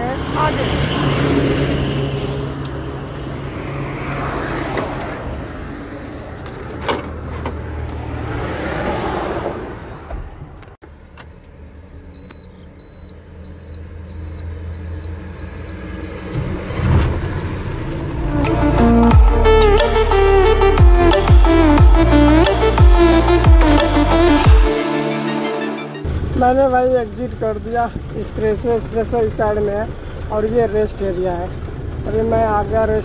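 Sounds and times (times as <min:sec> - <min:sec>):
traffic passing on expressway: 0:00.0 - 0:20.8, 0:25.9 - 0:33.0
truck engine hum: 0:09.8 - 0:33.0
dashboard warning beeps: 0:12.2 - 0:19.1.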